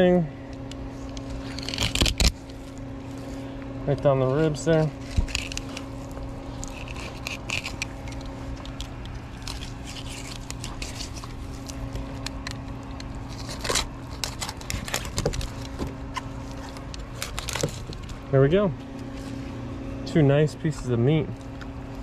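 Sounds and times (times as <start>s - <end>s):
steady low hum: 0.0s - 22.0s
knife scraping fish skin and bones: 1.1s - 2.6s, 6.5s - 15.6s.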